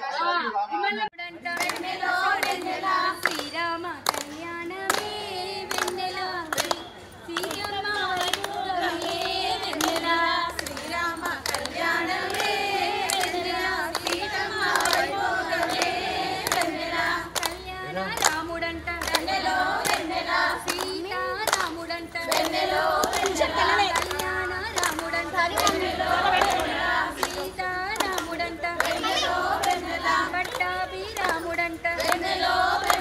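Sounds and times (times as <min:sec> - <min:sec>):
women singing in unison: 0:01.2 - 0:33.0
hands clapping to a beat: 0:01.5 - 0:33.0.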